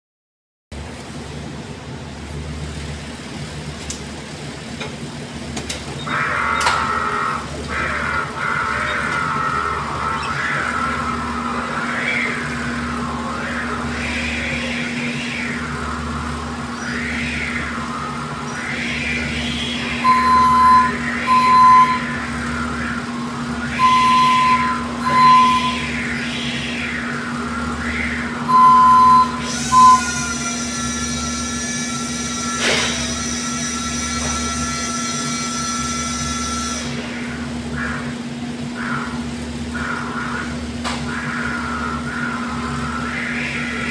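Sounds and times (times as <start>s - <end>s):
forklift low hum: 0.8s - 43.9s
high electric whine: 0.8s - 43.9s
wavering tone: 6.1s - 38.1s
forklift warning beeps: 19.2s - 22.8s, 23.4s - 26.2s, 28.4s - 30.4s.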